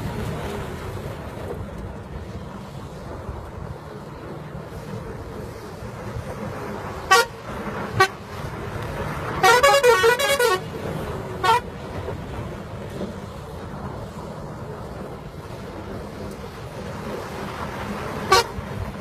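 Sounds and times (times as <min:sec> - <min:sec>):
engine and road rumble: 0:00.0 - 0:19.0
bus horn toots: 0:07.1 - 0:08.3, 0:09.4 - 0:10.7, 0:11.4 - 0:11.7, 0:18.3 - 0:18.6
warbling multi-tone horn: 0:07.1 - 0:08.3, 0:09.4 - 0:10.7, 0:11.4 - 0:11.7, 0:18.3 - 0:18.6.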